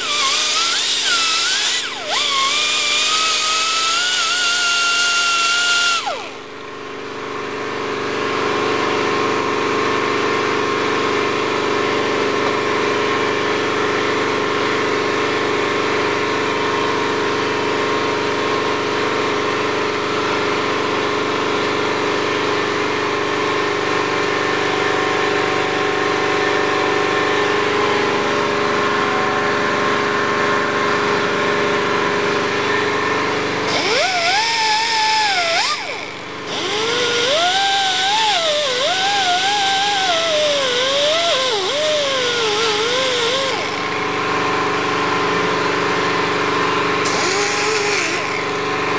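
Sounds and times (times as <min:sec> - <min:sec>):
die grinder whining: 0:00.0 - 0:06.8, 0:19.6 - 0:48.9
steady mechanical drone: 0:00.0 - 0:48.9.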